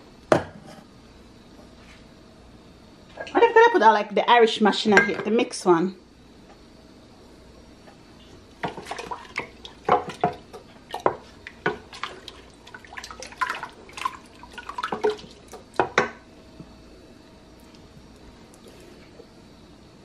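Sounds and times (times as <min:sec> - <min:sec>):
liquid sloshing and dripping: 0:08.6 - 0:15.9.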